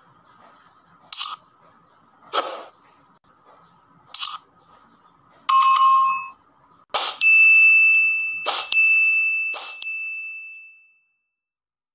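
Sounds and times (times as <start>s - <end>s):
notification bell ding: 7.2s - 11.2s.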